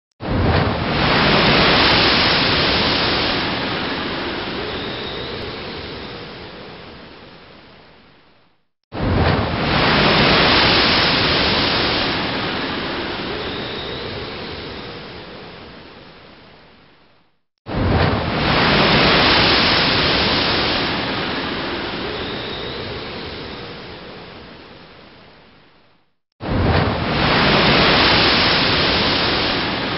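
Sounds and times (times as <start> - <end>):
rushing roar of surf: 0.2 - 6.7, 9.0 - 15.8, 17.7 - 24.5, 26.4 - 29.9
heavy waves breaking: 0.2 - 7.7, 8.9 - 16.1, 17.7 - 24.7, 26.4 - 29.9.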